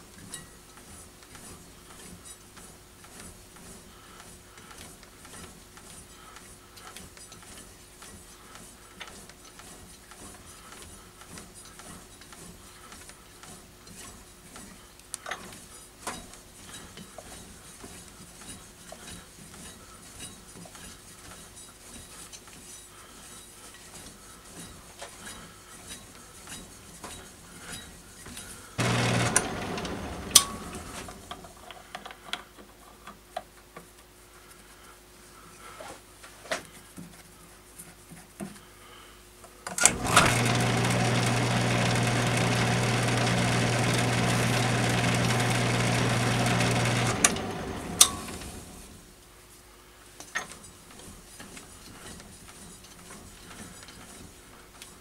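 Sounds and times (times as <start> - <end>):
metal lathe humming: 28.8 - 31.3, 39.9 - 49.0.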